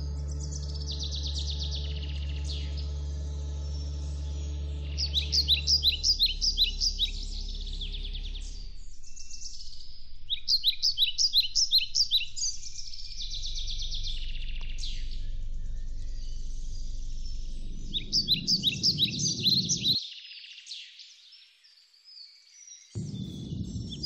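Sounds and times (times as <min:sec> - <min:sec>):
low rumbling noise: 0:00.0 - 0:20.0, 0:23.0 - 0:24.0
bird chirping: 0:00.0 - 0:24.0.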